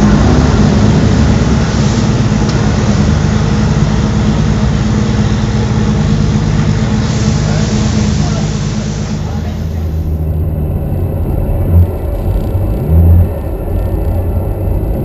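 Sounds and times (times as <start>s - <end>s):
race car engines idling: 0.0s - 15.0s.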